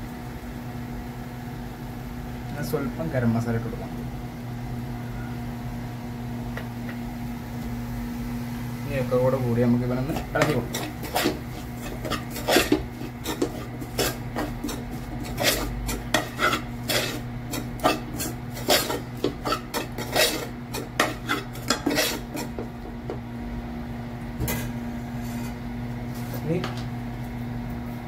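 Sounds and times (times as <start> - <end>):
spoon scraping metal pan: 10.0 - 22.7, 25.2 - 25.6.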